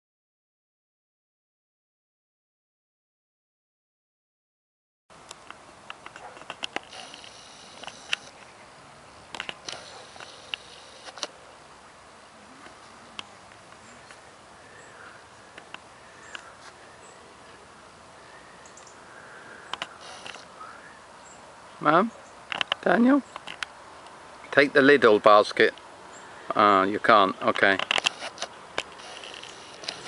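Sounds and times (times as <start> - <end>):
faint outdoor hiss: 5.1 - 30.0
sharp ticks: 5.3 - 8.5, 9.3 - 11.3, 27.7 - 30.0
insects chirping: 5.7 - 30.0.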